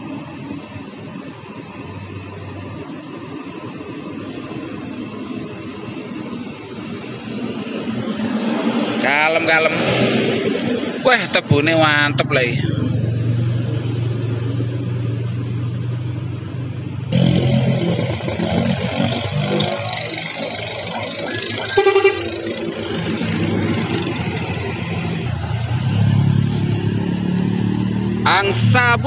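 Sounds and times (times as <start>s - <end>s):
motorcycle engines: 0.0s - 29.0s
truck engines passing: 0.0s - 29.0s
truck horn blast: 17.1s - 20.6s, 21.2s - 23.1s.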